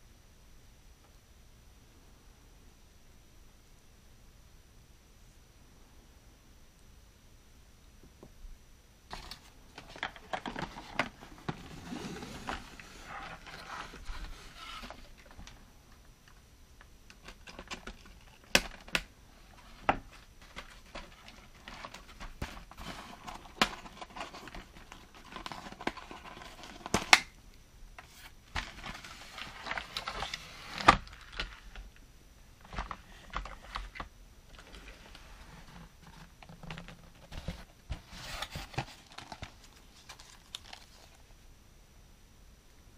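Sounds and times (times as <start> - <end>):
cardboard packaging rustling: 9.1 - 15.6, 17.1 - 27.3, 28.0 - 32.0, 32.6 - 41.3.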